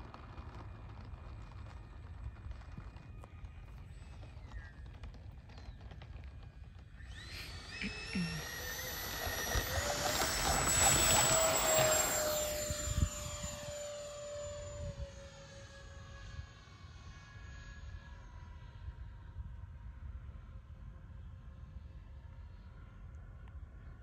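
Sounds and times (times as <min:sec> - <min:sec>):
electric ducted fans whining: 0:00.0 - 0:18.5.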